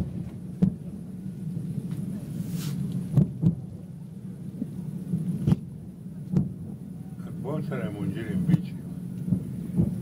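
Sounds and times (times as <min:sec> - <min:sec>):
steady low hum: 0:00.0 - 0:10.0
brief hiss: 0:02.4 - 0:02.9.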